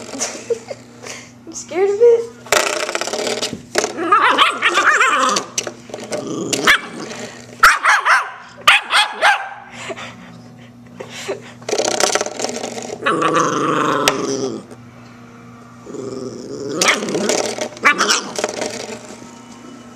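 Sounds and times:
puppy growling: 0:02.5 - 0:07.6, 0:11.6 - 0:14.8, 0:15.8 - 0:19.0
puppy barking: 0:04.1 - 0:05.3, 0:06.6 - 0:07.0, 0:07.6 - 0:09.7.

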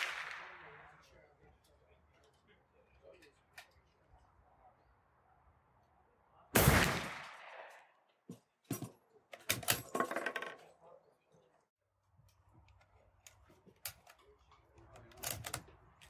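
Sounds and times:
rifle shot: 0:00.0 - 0:00.9, 0:06.6 - 0:07.8
rifle bolt clicking and clattering: 0:12.7 - 0:15.8.

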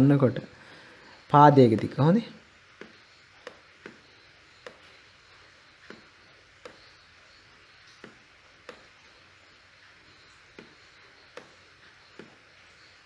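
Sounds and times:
touchpad clicking: 0:01.6 - 0:02.0, 0:02.8 - 0:05.0, 0:05.8 - 0:07.0.

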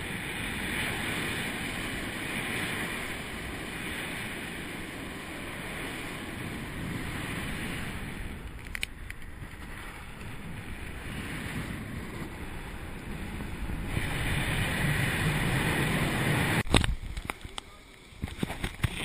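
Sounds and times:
wind rushing over microphone: 0:00.0 - 0:17.5.

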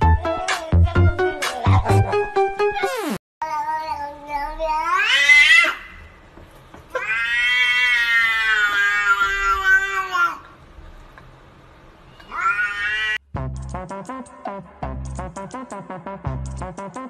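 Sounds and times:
cat meowing: 0:06.9 - 0:10.4, 0:12.1 - 0:13.2.

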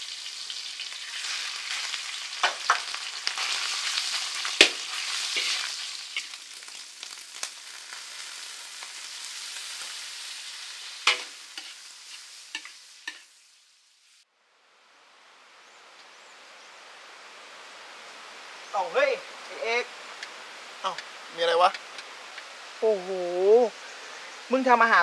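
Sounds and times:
faint hiss: 0:00.0 - 0:25.0
meat sizzling in a wok: 0:00.0 - 0:25.0
metal spatula scraping pan: 0:05.0 - 0:06.4.

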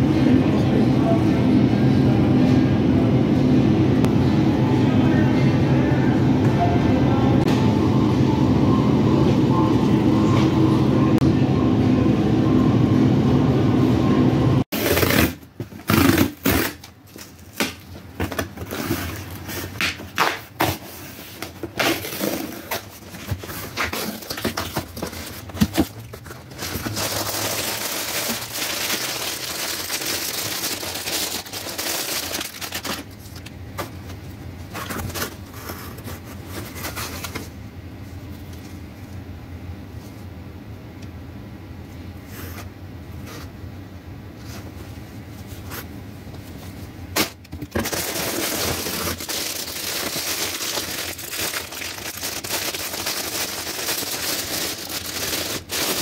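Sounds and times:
plastic packaging crinkling: 0:21.6 - 0:33.6, 0:47.7 - 0:56.0.

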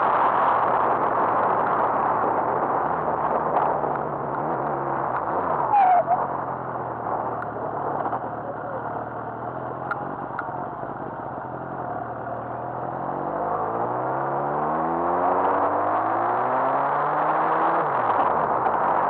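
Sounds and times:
wind and road noise: 0:00.0 - 0:19.0.

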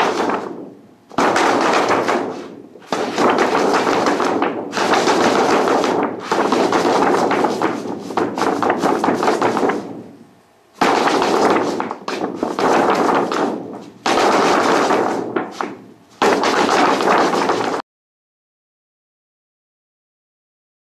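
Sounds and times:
stiff paper crackling: 0:01.2 - 0:09.9, 0:10.8 - 0:17.8.

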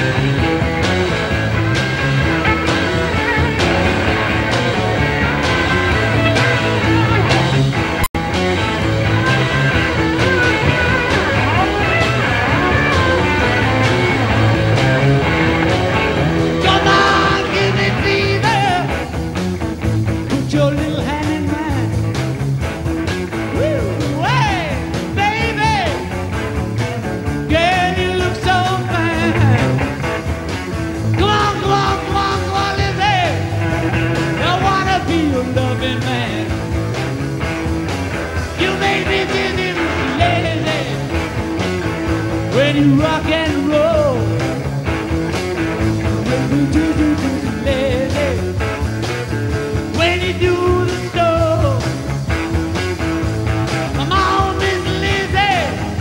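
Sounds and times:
lead guitar bending notes: 0:00.0 - 0:19.0, 0:28.8 - 0:31.2
rock band playing: 0:00.0 - 0:56.0
person singing: 0:16.6 - 0:19.0, 0:27.5 - 0:29.8, 0:31.2 - 0:33.5, 0:38.6 - 0:41.1, 0:42.5 - 0:44.3, 0:46.2 - 0:48.5, 0:50.0 - 0:51.9, 0:54.0 - 0:56.0.

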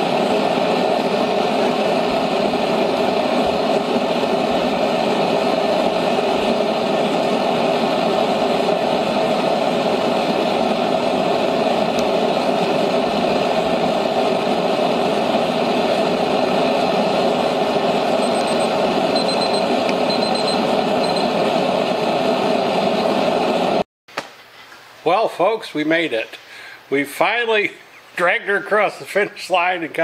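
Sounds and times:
forge burner gas flame rushing: 0:00.0 - 0:23.8.

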